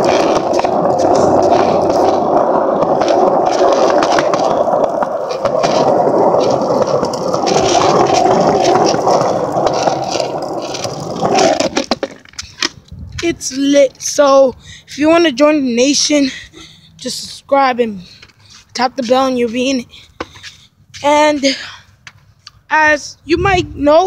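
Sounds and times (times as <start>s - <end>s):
skateboard wheels rolling on pavement: 0.0s - 14.3s.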